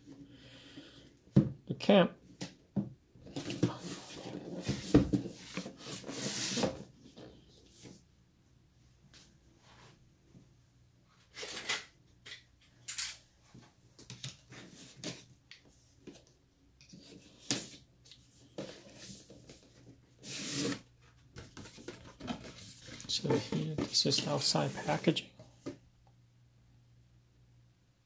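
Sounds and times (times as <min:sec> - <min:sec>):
cardboard rustling: 0:18.6 - 0:25.2.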